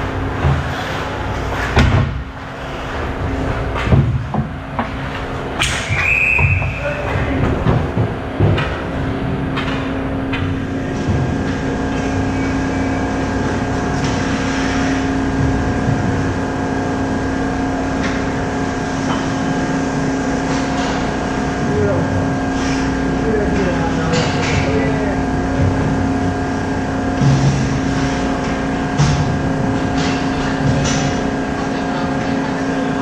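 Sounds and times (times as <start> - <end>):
ice rink noise with hum: 0.0 - 33.0
referee's whistle: 5.9 - 6.9.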